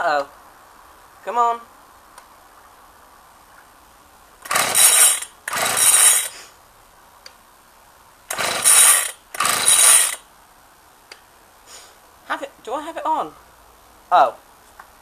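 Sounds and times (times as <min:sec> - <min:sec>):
recoil starter whirring: 0:04.4 - 0:06.3, 0:08.3 - 0:10.2.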